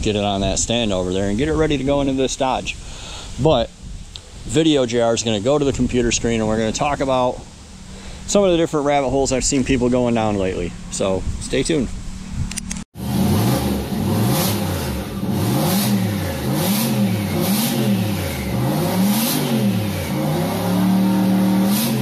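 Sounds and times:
engine revving: 0:13.0 - 0:22.0.

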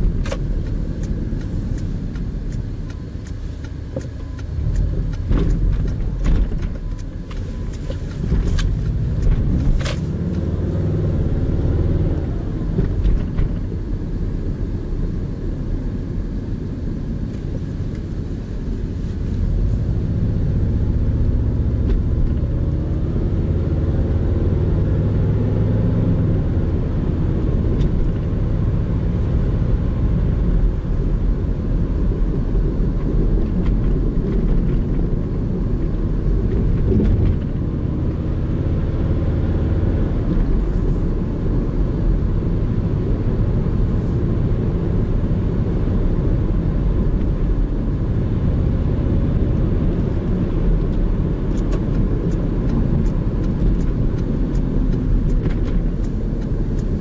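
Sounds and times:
low engine hum: 0:00.0 - 0:57.0
tyre and road rumble: 0:00.0 - 0:57.0.

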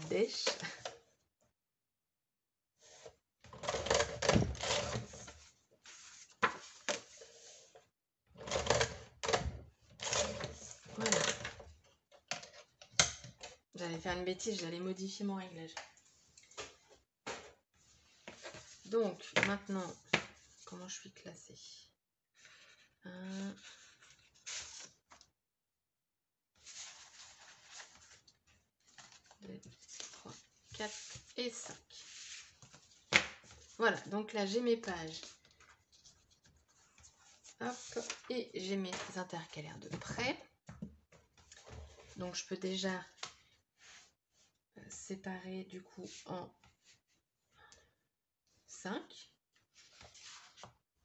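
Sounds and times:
paper rustling and sliding: 0:04.6 - 0:07.8, 0:23.7 - 0:25.2, 0:26.6 - 0:31.4, 0:32.0 - 0:33.8, 0:49.8 - 0:50.7.

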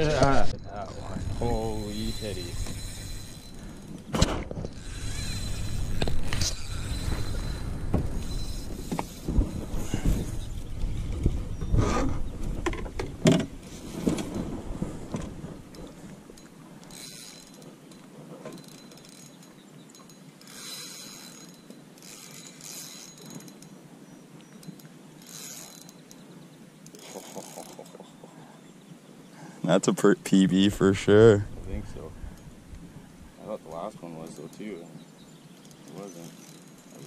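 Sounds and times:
spinning reel gears whirring: 0:00.8 - 0:04.1, 0:04.7 - 0:10.4, 0:16.8 - 0:17.7, 0:18.6 - 0:23.8, 0:24.6 - 0:26.2, 0:35.6 - 0:37.0.

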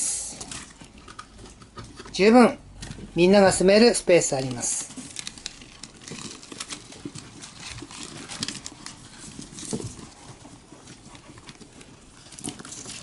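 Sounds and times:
hamsters nibbling food: 0:00.0 - 0:13.0
paws scrabbling over paper: 0:04.4 - 0:13.0.

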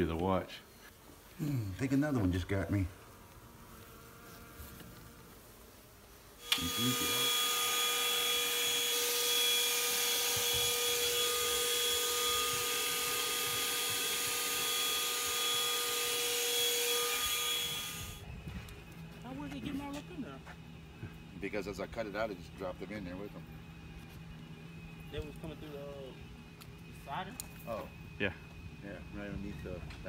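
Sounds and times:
vacuum motor whining: 0:06.4 - 0:18.3.

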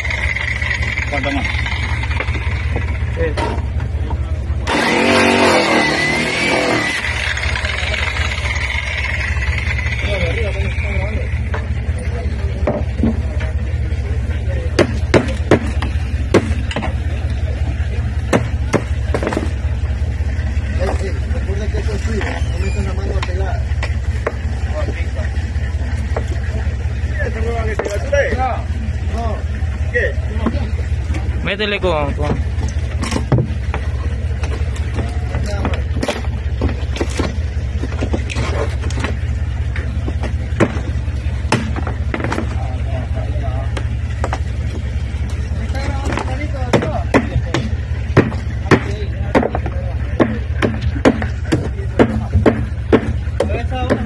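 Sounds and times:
steady low drone: 0:00.0 - 0:54.0
steady low hum: 0:00.0 - 0:54.0
hammer knocking on wood deck: 0:46.7 - 0:54.0.

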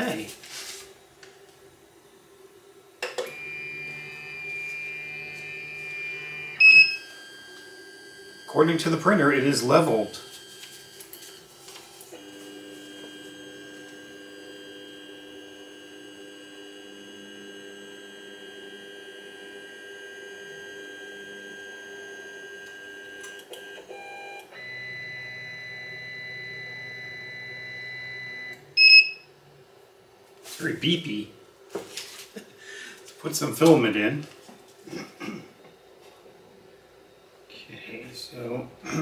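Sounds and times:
printer stepper motors whining: 0:03.0 - 0:29.0
short electronic beep: 0:06.6 - 0:07.1, 0:28.3 - 0:29.3.

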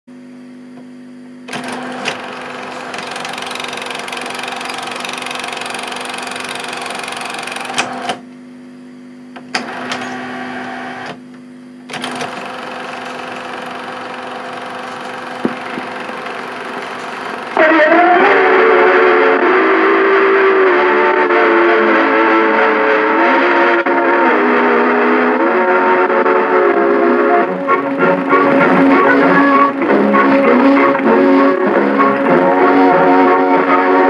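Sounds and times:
projector steady hum: 0:01.4 - 0:08.7, 0:09.3 - 0:19.4, 0:26.3 - 0:34.0.

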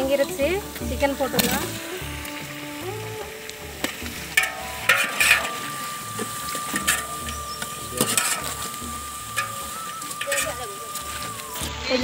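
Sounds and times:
background music with steady beat: 0:00.0 - 0:12.0
metal ladle scraping cooking pot: 0:03.8 - 0:11.7.

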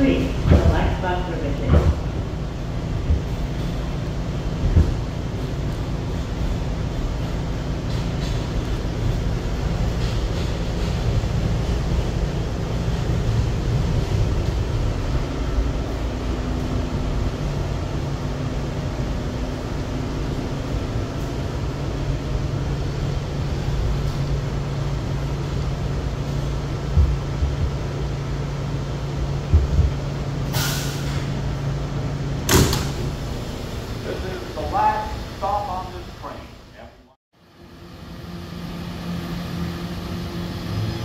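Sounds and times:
low thuds: 0:00.0 - 0:06.7, 0:23.9 - 0:30.5
subway train hum and rumble: 0:00.0 - 0:41.0
air hiss: 0:30.4 - 0:31.4.

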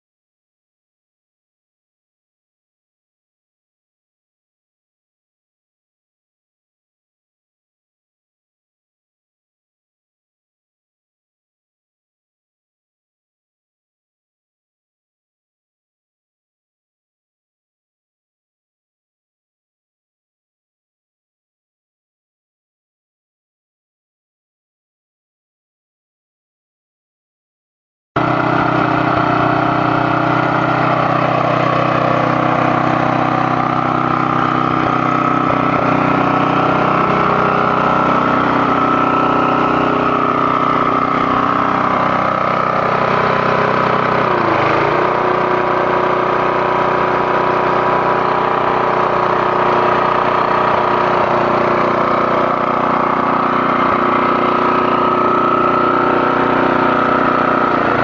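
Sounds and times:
lawnmower engine running: 0:28.2 - 0:58.0.

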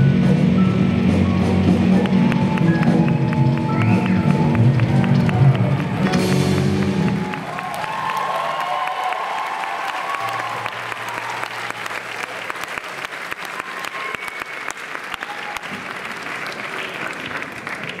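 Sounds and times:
rock band held notes: 0:00.0 - 0:07.4
audience applauding: 0:01.2 - 0:18.0.

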